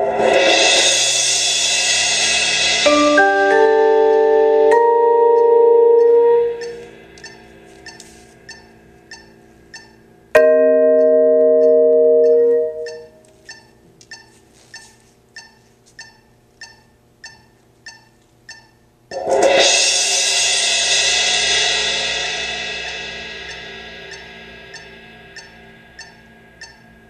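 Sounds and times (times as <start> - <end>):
loud cymbal crash: 0.0 - 5.2, 5.8 - 7.7, 19.2 - 26.6
marimba chord: 2.6 - 7.5, 10.4 - 13.3
light taps on a cymbal: 22.4 - 27.0.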